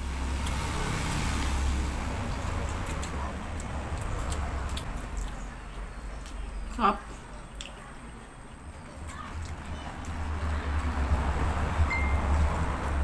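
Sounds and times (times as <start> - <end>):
vehicle passing rumble: 0.0 - 13.0
eating clicks: 2.4 - 8.0, 8.8 - 12.2.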